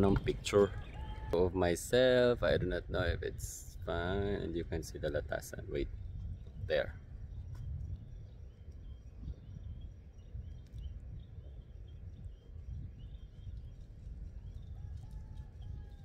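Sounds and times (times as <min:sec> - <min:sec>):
wind rumble on microphone: 0:00.0 - 0:16.0
faint bird chirps: 0:05.8 - 0:16.0.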